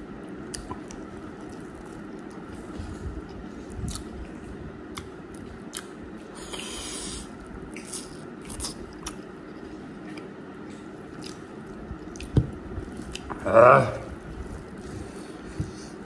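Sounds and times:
wet chewing and mouth smacking: 0.5s - 13.4s, 14.1s - 16.0s.

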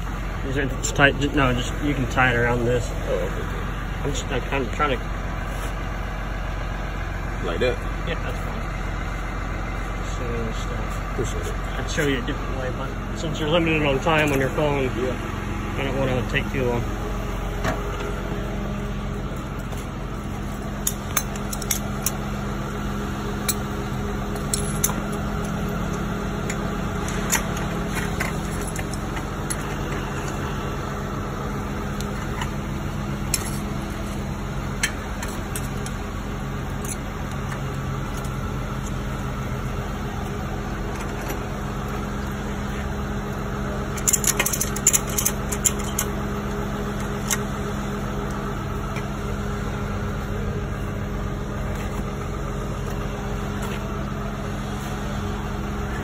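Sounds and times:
truck engine idling: 0.0s - 56.0s
metal clinks: 24.3s - 25.8s
ratchet strap clicking: 44.0s - 46.1s.

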